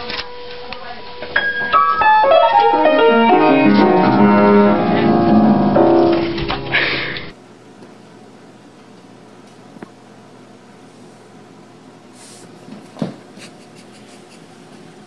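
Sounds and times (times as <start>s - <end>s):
piano notes stepping down: 1.2s - 7.3s.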